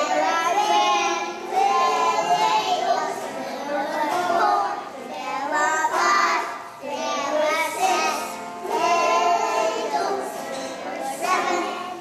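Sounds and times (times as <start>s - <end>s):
children singing together: 0.0s - 12.0s.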